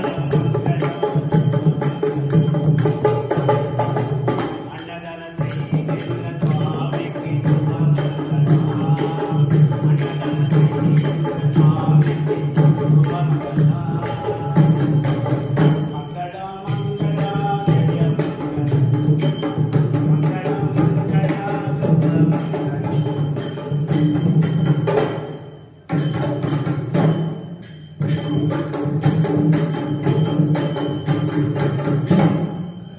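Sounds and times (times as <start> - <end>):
person chanting: 0.0 - 25.1
hand-played barrel drums: 0.0 - 32.9
small hand cymbals clashing: 22.4 - 32.9.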